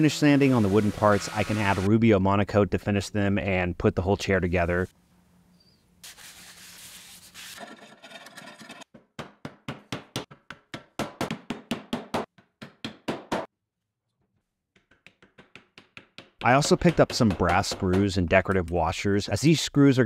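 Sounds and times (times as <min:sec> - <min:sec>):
steady hiss: 0:00.0 - 0:01.9.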